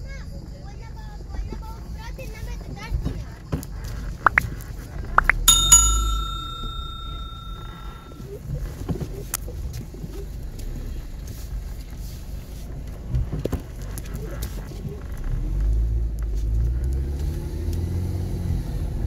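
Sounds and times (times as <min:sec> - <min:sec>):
small hard object ringing: 0:05.2 - 0:08.1.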